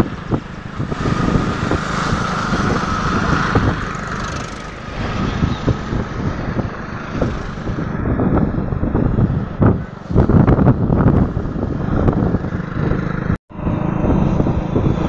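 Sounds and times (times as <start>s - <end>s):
motorcycle engine and road noise: 0.0s - 15.0s
motorcycle passing: 0.0s - 15.0s
passing traffic: 0.0s - 15.0s
tractor passing: 0.0s - 15.0s
wind buffeting microphone: 0.0s - 15.0s.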